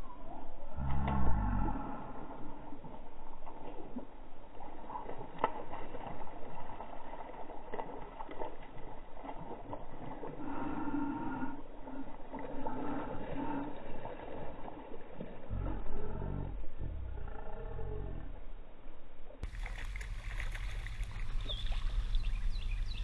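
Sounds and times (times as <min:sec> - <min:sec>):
fish splashing at water surface: 0:19.4 - 0:22.5.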